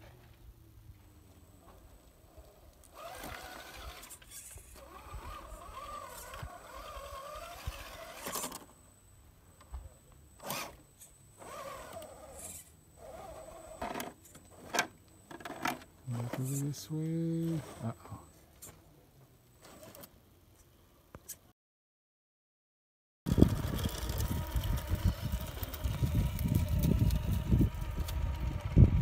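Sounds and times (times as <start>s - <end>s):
rc truck motor whining: 1.7s - 8.8s, 10.4s - 18.8s, 19.5s - 20.2s, 23.3s - 29.0s.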